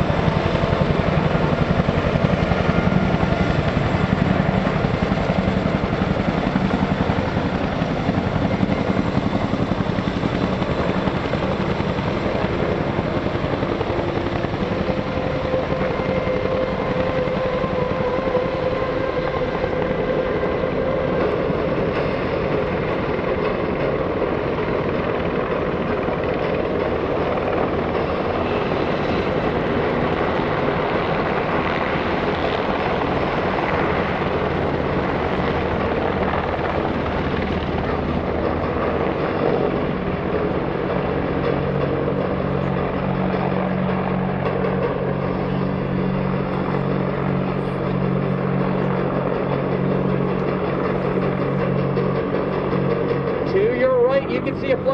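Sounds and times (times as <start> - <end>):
helicopter rotors and engines: 0.0 - 54.9.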